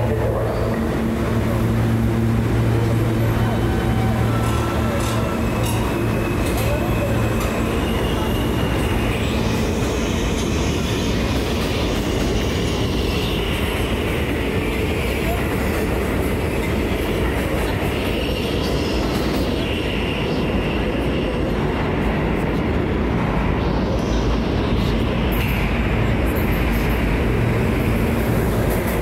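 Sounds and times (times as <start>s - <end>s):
subway train wheels rumbling: 0.0s - 29.0s
faint high wheel squeal: 3.0s - 11.3s.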